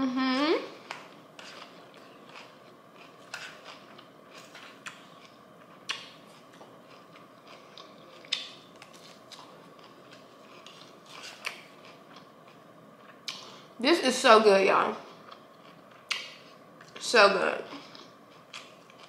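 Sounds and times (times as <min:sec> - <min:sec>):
faint chewing: 0:00.9 - 0:13.6, 0:15.0 - 0:17.0, 0:17.7 - 0:19.0.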